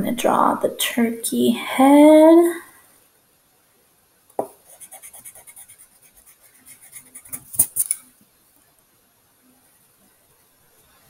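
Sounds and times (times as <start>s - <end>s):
pencil tapping: 4.4s - 8.0s
pencil scratching on paper: 4.6s - 8.0s.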